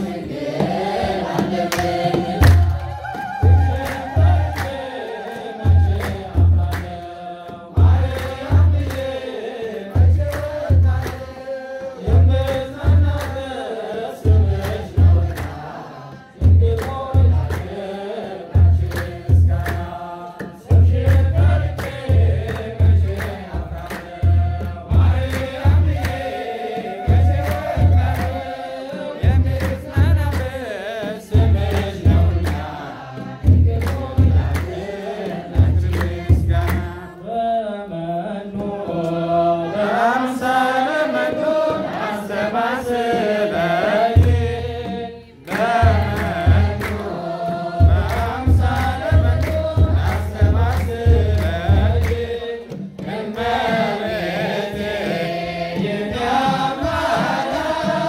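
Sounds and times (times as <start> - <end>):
choir singing a hymn: 0.0 - 58.0
drum beating low beats: 0.6 - 4.6, 20.7 - 26.4, 27.0 - 28.5, 29.2 - 37.0, 45.6 - 53.0
hands clapping in time: 1.3 - 7.2, 7.8 - 9.3, 10.0 - 11.4, 12.1 - 13.6, 14.2 - 15.8, 16.4 - 37.1, 44.2 - 54.6.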